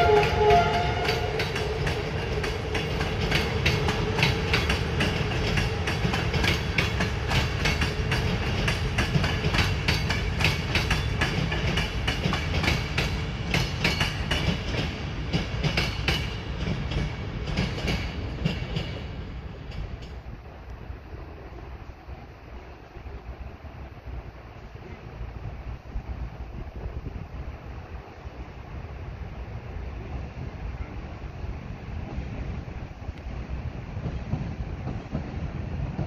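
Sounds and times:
wheels clattering over rail joints: 0:00.0 - 0:20.3
train rumble: 0:00.0 - 0:36.0.

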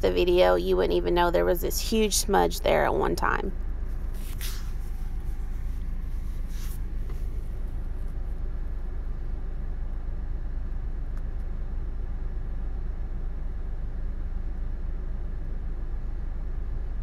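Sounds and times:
steady low hum: 0:00.0 - 0:17.0
faint brief hissing: 0:04.1 - 0:07.4.

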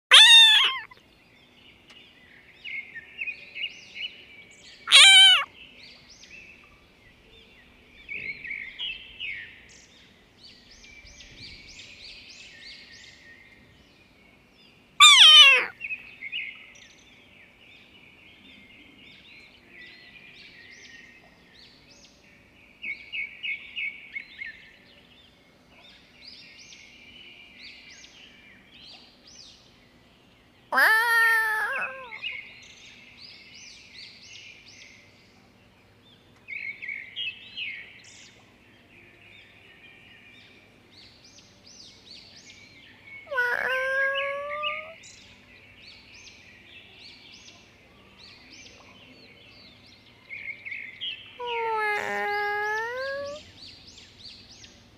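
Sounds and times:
kitten mewing: 0:00.1 - 0:01.0, 0:04.9 - 0:05.4, 0:15.0 - 0:15.7, 0:30.8 - 0:32.2, 0:43.3 - 0:45.0, 0:51.4 - 0:53.4
small birds chirping: 0:00.1 - 0:07.3, 0:08.0 - 0:24.8, 0:26.3 - 0:54.9.

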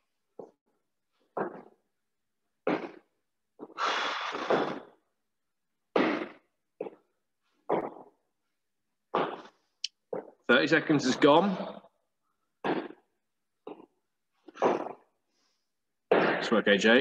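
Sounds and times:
heavy breathing: 0:03.6 - 0:05.1.

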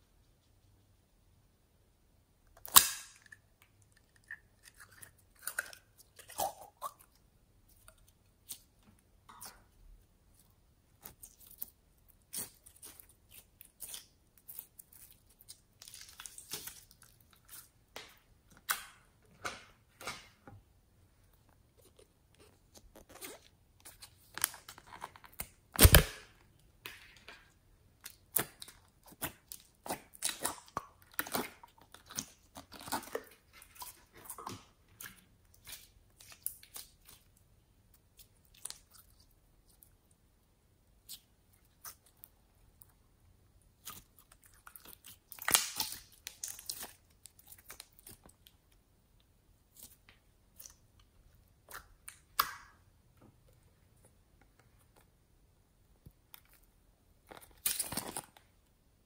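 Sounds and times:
loud slime crack: 0:02.6 - 0:03.3, 0:25.3 - 0:26.4, 0:43.8 - 0:48.3, 0:57.4 - 0:58.4
slime clicking and crackling: 0:22.8 - 0:26.3, 0:28.0 - 0:37.4, 0:43.7 - 0:48.6, 0:56.3 - 0:58.5.

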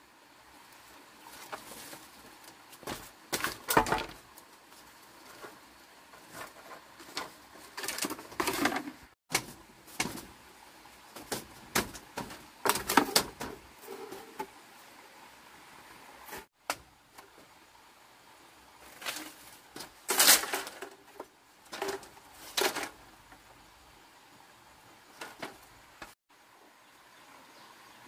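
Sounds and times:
bamboo panel knocking and rattling: 0:02.8 - 0:04.4, 0:06.2 - 0:10.4, 0:11.1 - 0:14.5, 0:19.0 - 0:23.4, 0:25.1 - 0:26.1.

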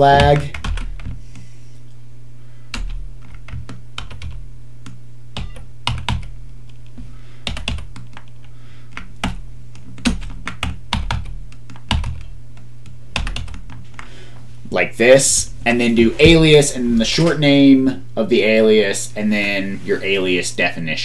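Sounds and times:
steady low hum: 0:00.0 - 0:21.0
keyboard keys clicking: 0:02.7 - 0:14.0.

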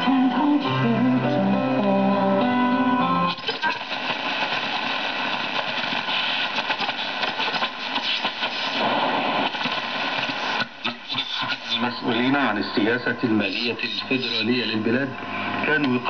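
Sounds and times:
plucked string music on radio: 0:00.0 - 0:12.8
radio static crackling hiss: 0:00.0 - 0:16.0.

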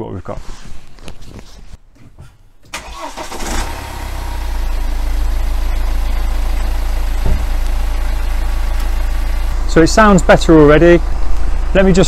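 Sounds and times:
diesel engine starting and idling: 0:02.7 - 0:12.0
thump: 0:07.2 - 0:07.6.

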